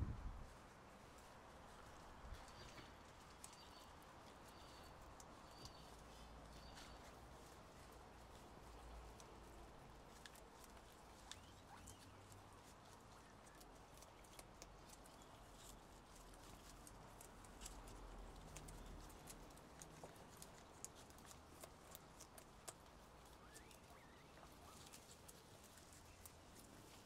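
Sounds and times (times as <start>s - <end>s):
low steady hum: 0.0s - 3.7s
guinea pigs nibbling: 0.1s - 27.0s.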